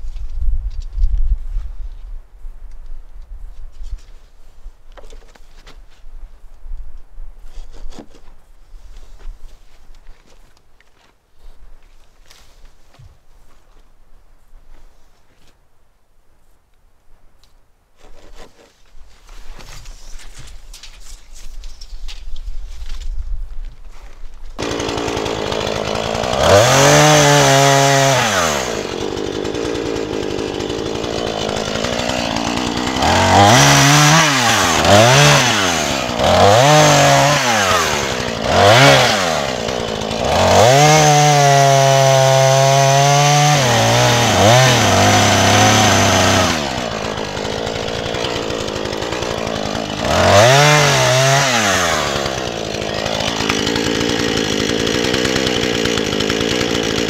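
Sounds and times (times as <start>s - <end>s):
chainsaw starting and revving: 24.6s - 57.0s.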